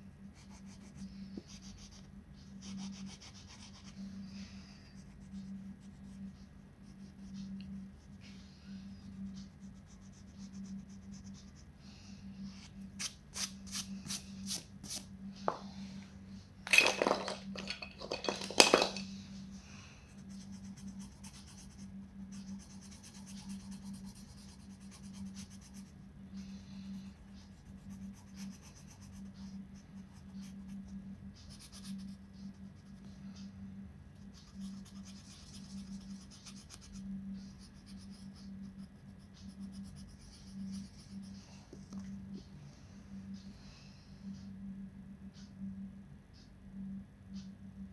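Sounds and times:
steady low hum: 0.0s - 47.9s
crayon scratching on paper: 2.6s - 4.1s, 20.2s - 25.9s, 34.4s - 37.0s
crayon clattering down: 16.7s - 19.0s.

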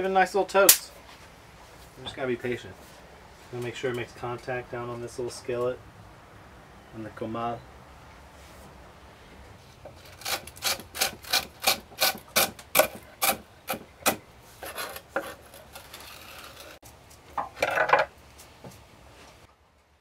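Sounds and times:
knife scraping board: 10.0s - 16.8s.

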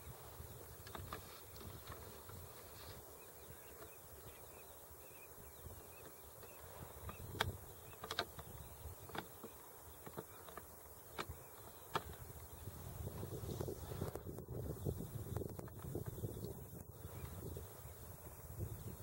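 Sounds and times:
wind rumbling on microphone: 0.0s - 19.0s
sharp clicks: 6.0s - 12.5s.

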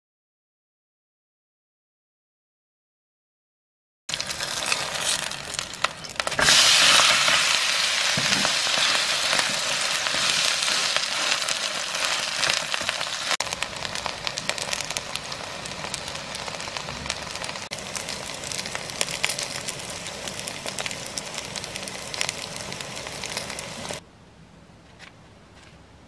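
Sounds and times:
batter sizzling in frying pan: 4.1s - 24.0s.

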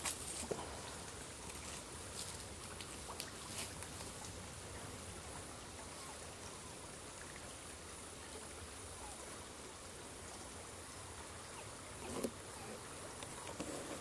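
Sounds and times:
stream flowing: 0.0s - 14.0s.

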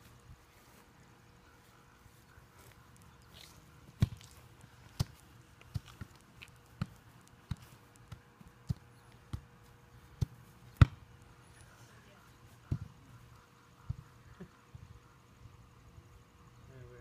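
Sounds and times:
soccer ball thumps: 6.7s - 9.5s, 10.2s - 11.0s.

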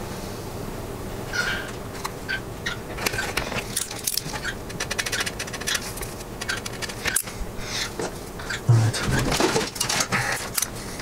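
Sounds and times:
circuit board clicks and scrapes: 3.0s - 5.8s.

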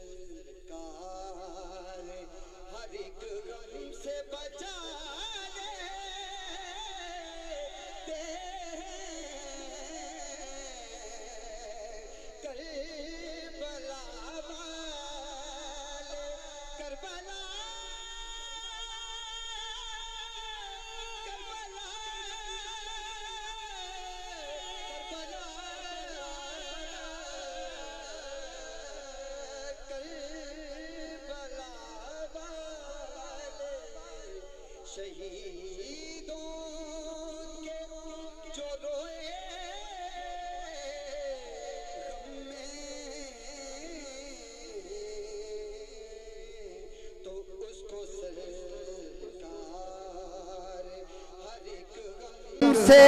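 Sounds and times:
man singing melismatic phrases: 52.6s - 53.0s.

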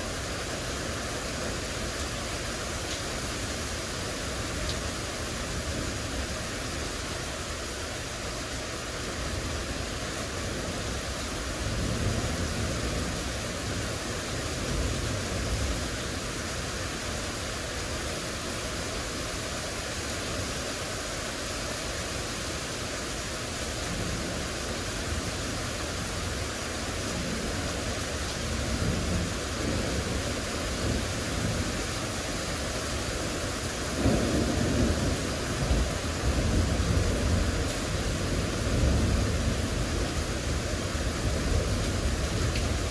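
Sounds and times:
heavy rain pouring: 0.0s - 42.9s
thunder rumbling: 33.9s - 42.9s.

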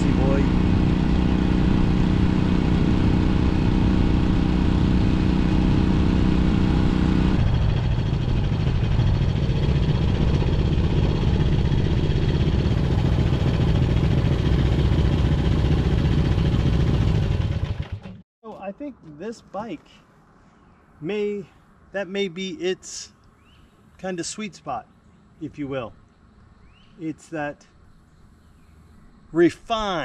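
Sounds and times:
motorcycle engine running: 0.0s - 18.2s.

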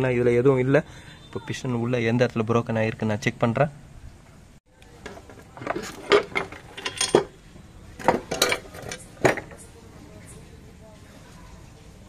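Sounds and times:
metal engine parts clinking: 5.0s - 9.7s.

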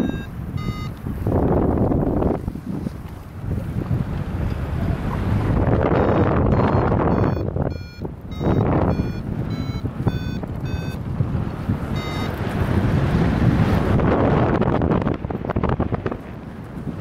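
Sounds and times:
variometer beeping: 0.0s - 1.1s, 5.8s - 11.1s, 11.9s - 12.6s
wind noise on microphone: 0.0s - 17.0s.

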